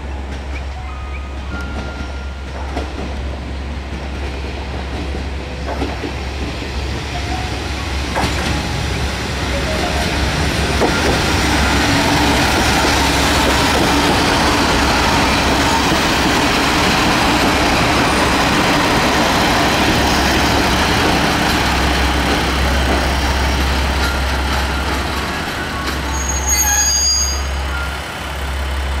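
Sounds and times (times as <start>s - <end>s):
train wheels and diesel engine: 0.0s - 29.0s
high-pitched brake squeal: 25.9s - 28.0s.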